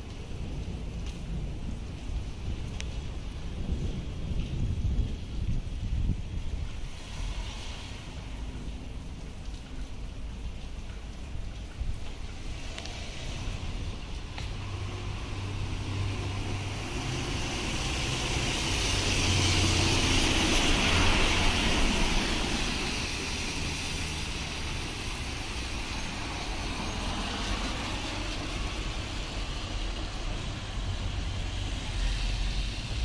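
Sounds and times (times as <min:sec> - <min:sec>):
tyres hissing through water: 0:06.6 - 0:33.0.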